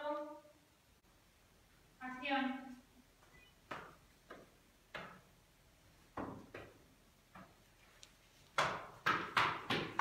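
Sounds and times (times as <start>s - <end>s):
footsteps going up stairs: 3.2s - 10.0s.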